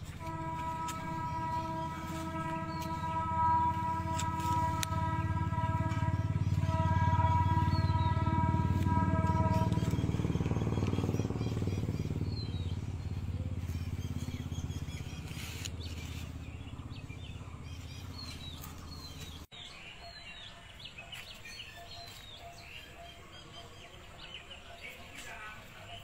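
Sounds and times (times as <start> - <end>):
vehicle engine humming: 0.0 - 19.5
small birds chirping: 0.0 - 26.0.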